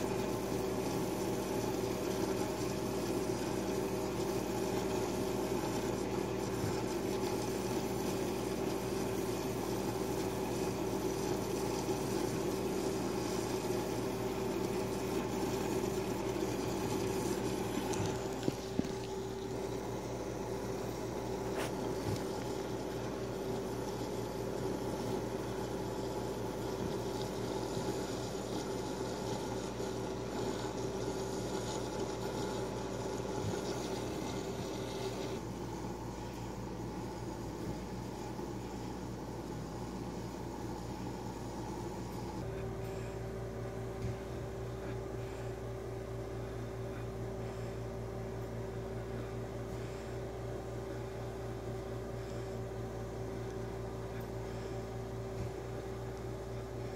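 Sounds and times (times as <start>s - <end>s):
pump hum: 0.0s - 56.9s
water and bubbles trickling: 0.2s - 36.1s.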